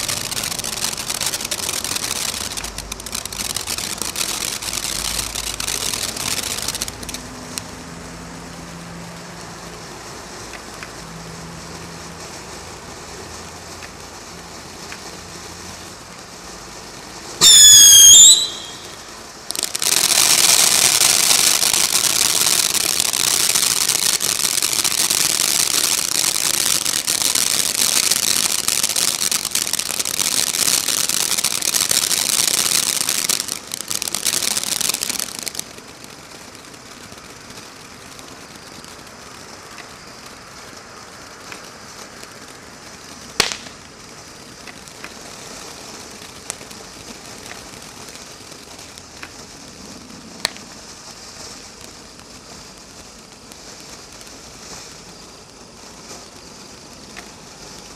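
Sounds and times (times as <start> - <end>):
firework fountain hissing sparks: 0.0 - 57.9
shrill wavering whistle: 17.4 - 19.0.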